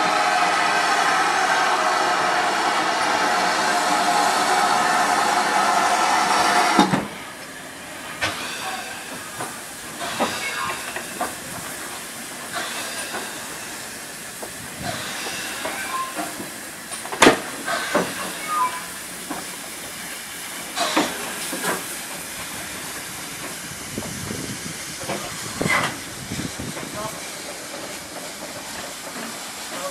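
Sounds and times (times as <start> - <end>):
loud steam hiss: 0.0 - 29.9
low steam hiss: 0.0 - 29.9
steam engine chuffs and clanks: 0.0 - 29.9.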